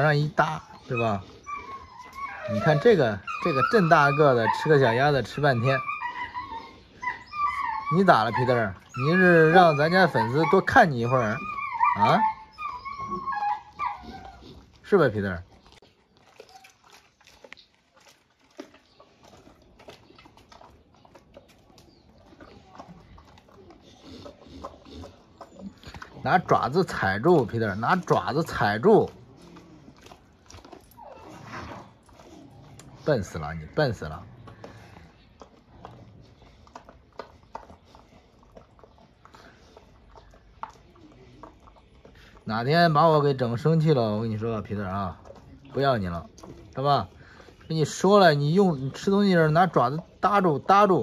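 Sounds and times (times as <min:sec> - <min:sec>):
dog chewing meat and bones: 0:00.0 - 0:51.0.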